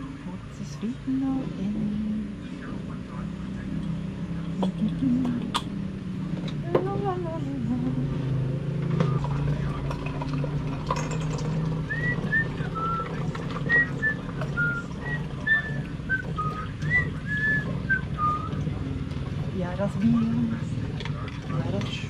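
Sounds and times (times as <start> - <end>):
steady low hum: 0.0 - 22.0
person whistling a tune: 11.9 - 18.6.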